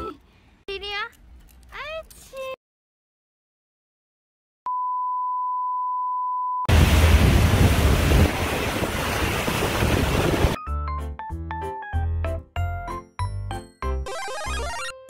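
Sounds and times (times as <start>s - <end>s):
heavy rain on pavement: 6.7s - 10.6s
wind rumbling on microphone: 6.7s - 10.6s.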